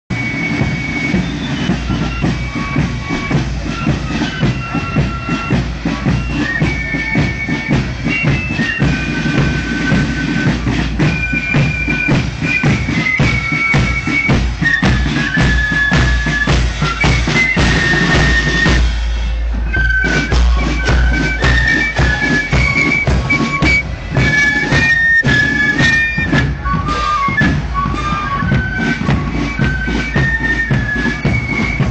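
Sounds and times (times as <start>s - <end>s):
high flute melody: 0.1s - 31.9s
side drums: 0.1s - 31.9s.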